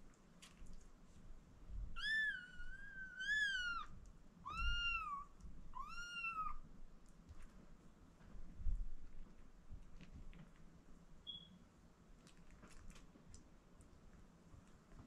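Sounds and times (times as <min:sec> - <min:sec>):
kittens meowing: 0:02.0 - 0:06.6.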